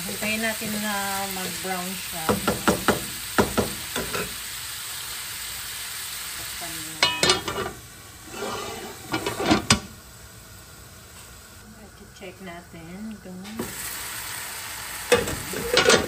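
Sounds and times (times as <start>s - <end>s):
meat sizzling in a frying pan: 0.0s - 16.0s
pan lid clinking: 7.0s - 7.8s, 15.1s - 16.0s
wooden spatula scraping pan: 7.1s - 9.9s.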